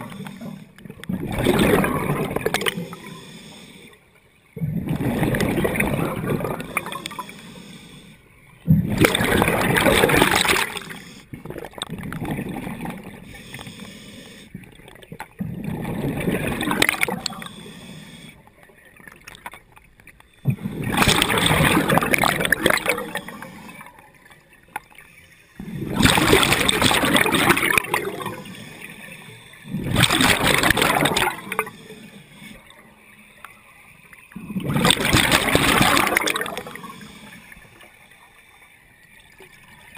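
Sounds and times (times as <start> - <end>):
scuba regulator bubbling underwater: 0.0 - 3.2, 4.6 - 7.7, 8.6 - 13.6, 14.9 - 17.8, 20.4 - 23.9, 25.6 - 28.9, 29.6 - 31.8, 34.3 - 37.2.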